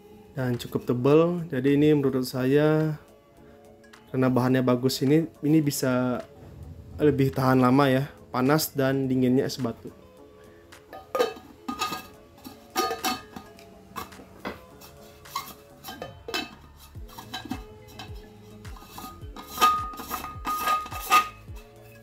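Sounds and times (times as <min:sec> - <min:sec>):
metal bottle taps and clinks: 0:10.9 - 0:21.4.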